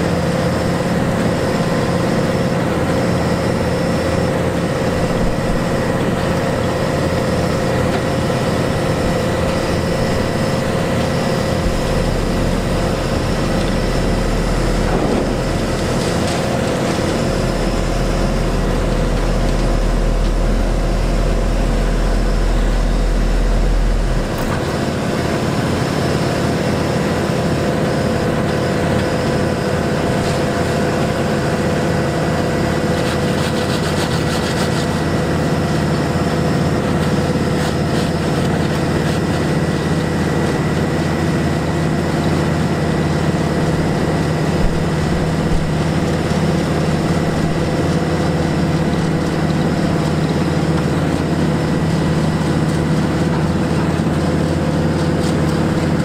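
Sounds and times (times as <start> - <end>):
high whine: 0.0 - 33.2, 37.4 - 56.0
heavy diesel machinery running: 0.0 - 56.0
deep low rumble: 4.8 - 25.4, 43.5 - 47.7.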